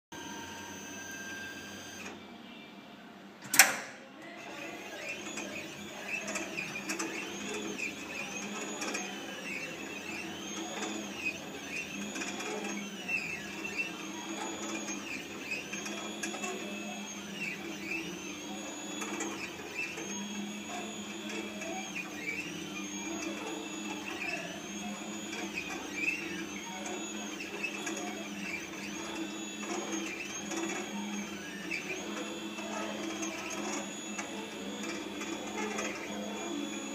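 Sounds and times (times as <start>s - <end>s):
motors whining: 0.2s - 2.3s, 3.5s - 36.9s
sharp click: 3.4s - 4.0s.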